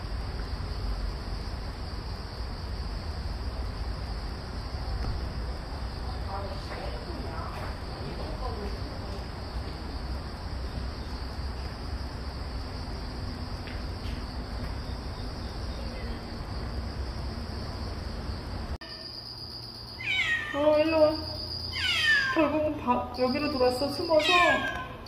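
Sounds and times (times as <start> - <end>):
faint high whine: 14.7 - 25.0
cat meowing: 20.0 - 20.8, 21.7 - 22.4, 24.2 - 25.0.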